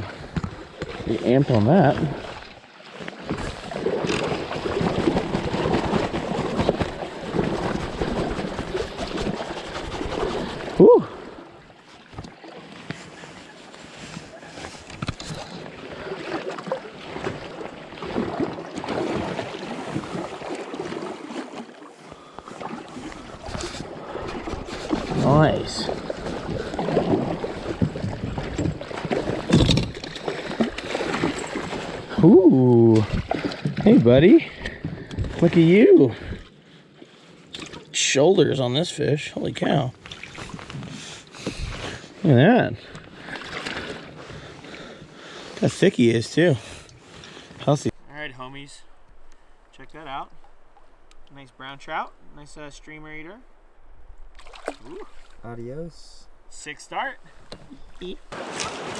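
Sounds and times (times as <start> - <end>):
water slapping against raft: 0.0 - 38.0, 39.5 - 48.0, 54.3 - 55.4, 57.3 - 58.9
man calling out: 10.8 - 11.2, 32.2 - 33.1.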